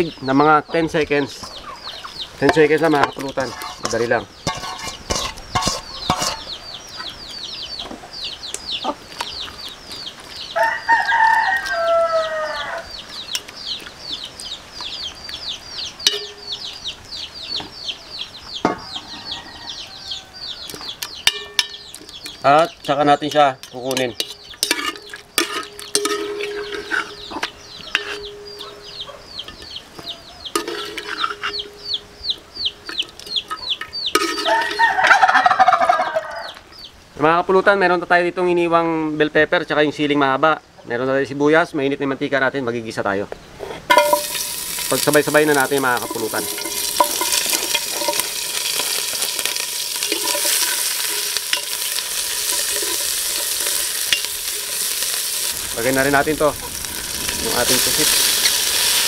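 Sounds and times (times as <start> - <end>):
chicks cheeping: 0.0 - 38.1
metal spoon scraping pot: 2.8 - 6.6, 23.3 - 28.6, 30.5 - 32.0, 32.8 - 34.9, 43.7 - 55.6
vegetables sizzling in hot oil: 43.9 - 59.0
metal spoon knocking on pot: 46.0 - 48.3.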